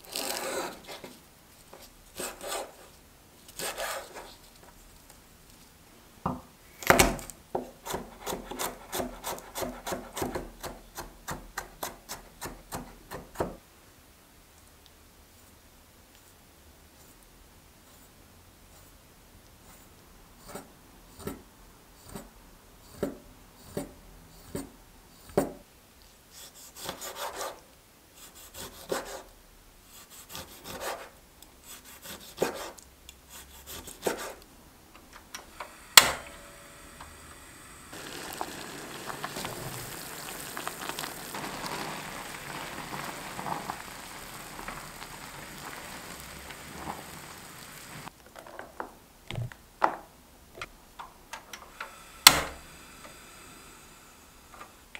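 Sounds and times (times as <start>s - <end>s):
knife cutting on wooden board: 3.6s - 4.3s
water pouring into colander: 37.9s - 48.1s.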